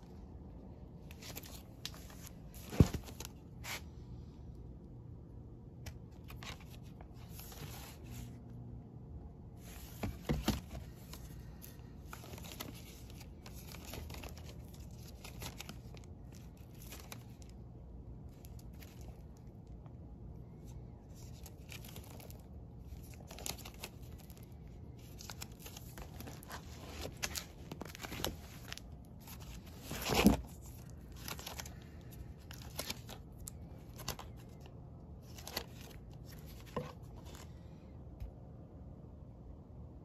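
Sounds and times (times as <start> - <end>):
plastic sleeves crinkling: 0.8 - 3.9, 9.6 - 37.6.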